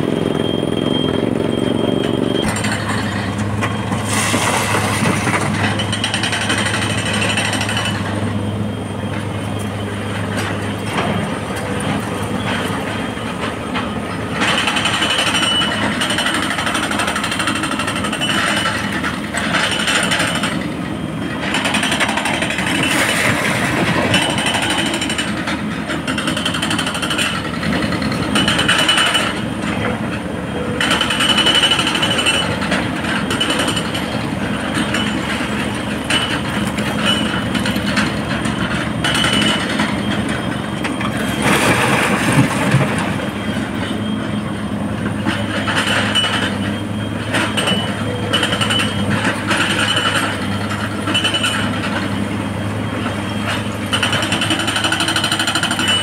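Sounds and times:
excavator engine and hydraulics: 0.0s - 56.0s.

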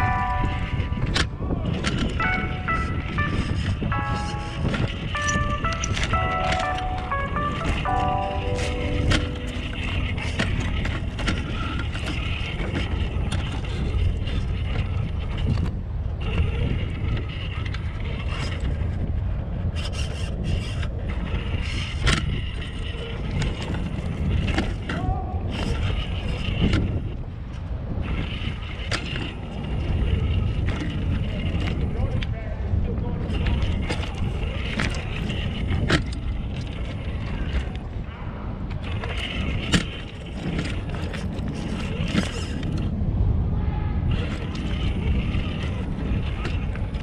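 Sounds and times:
toy truck electric motor rumble: 0.0s - 38.0s, 38.7s - 43.3s, 44.0s - 47.0s
tyres knocking and scraping rocks: 38.7s - 42.9s.

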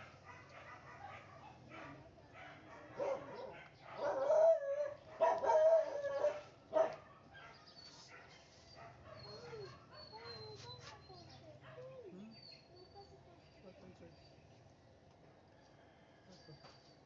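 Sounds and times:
dog barking: 0.0s - 12.1s
dog howling: 2.6s - 7.0s.

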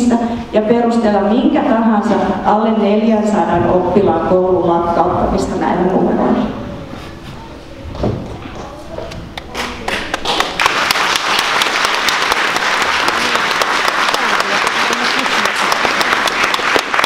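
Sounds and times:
audience applauding: 9.5s - 17.0s.

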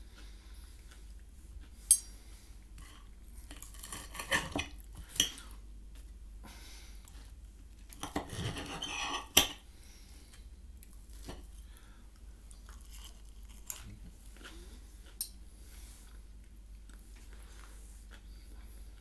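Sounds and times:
fork scraping a plate: 3.8s - 4.7s, 8.0s - 9.6s
chewing: 10.2s - 19.0s.

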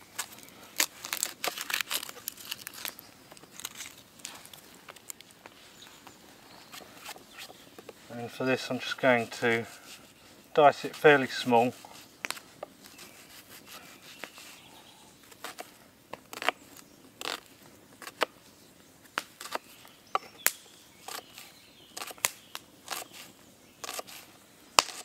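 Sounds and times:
knife cutting through onion: 22.9s - 25.0s.

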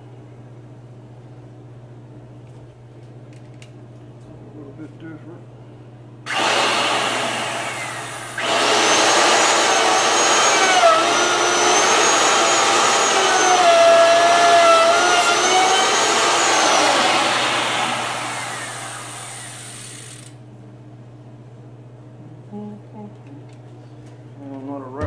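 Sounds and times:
electric router whining: 6.3s - 20.4s.

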